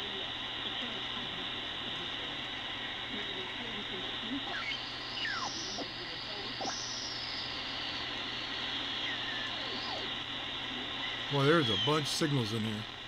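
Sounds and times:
radio static hiss: 0.0s - 13.0s
gliding radio whistles: 2.0s - 13.0s.

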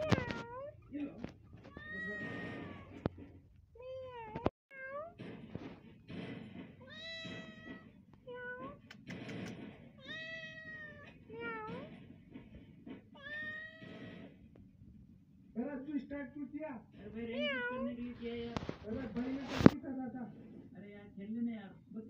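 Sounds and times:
kitten meowing: 1.6s - 3.0s
sharp click: 8.8s - 9.7s.

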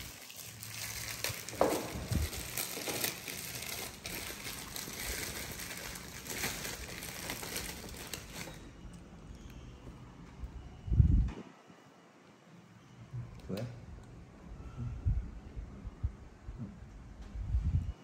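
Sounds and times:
plastic wrapping crinkling: 0.0s - 9.0s.

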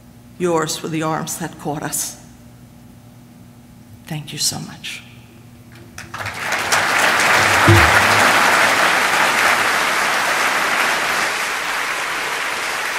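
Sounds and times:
audience applauding: 6.1s - 12.9s.

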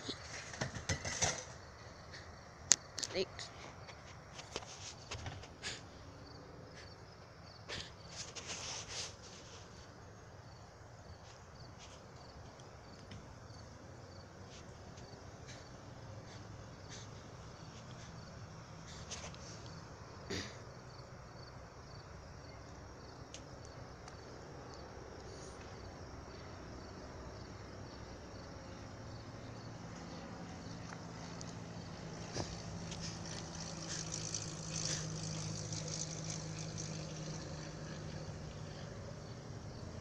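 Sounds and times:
cricket chirping: 0.0s - 40.0s
low vehicle hum: 9.7s - 40.0s.

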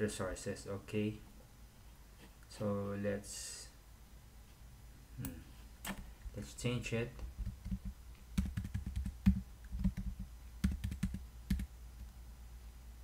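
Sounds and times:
keyboard keys clicking: 7.4s - 11.7s.

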